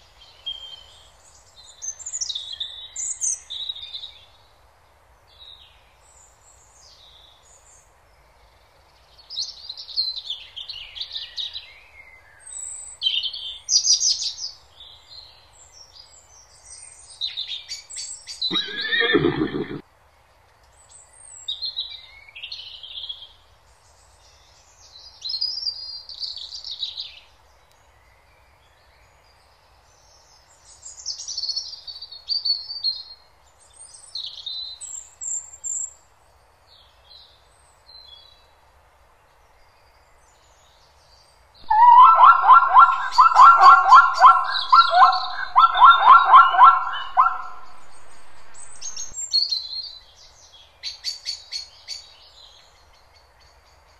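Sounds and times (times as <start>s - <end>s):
birds chirping: 18.5s - 19.8s, 41.6s - 49.2s
loud rapidly pulsed animal call: 18.5s - 19.8s, 41.7s - 49.1s.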